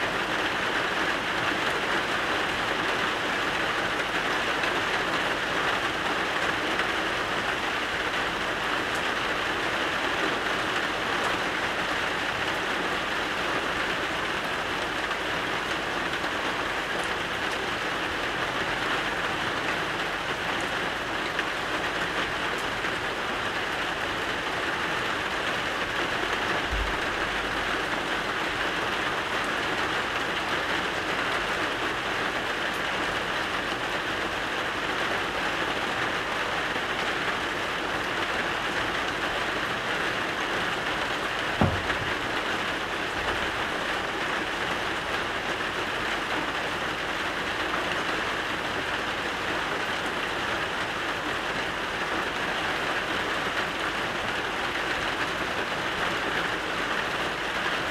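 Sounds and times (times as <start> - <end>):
steady rain hiss: 0.0 - 57.9
dull thump: 41.6 - 42.3.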